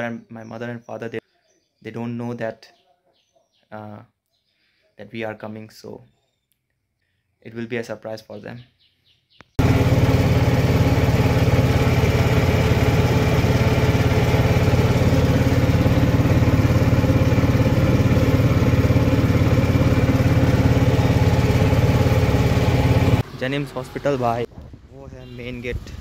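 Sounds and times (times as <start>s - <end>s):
auto-rickshaw engine running: 9.6s - 24.5s.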